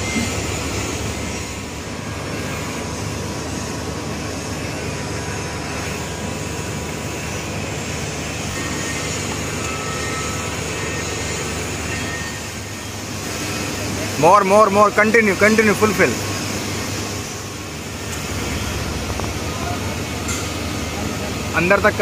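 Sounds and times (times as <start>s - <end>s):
machinery low hum: 0.0s - 22.0s
even rushing noise: 15.9s - 22.0s.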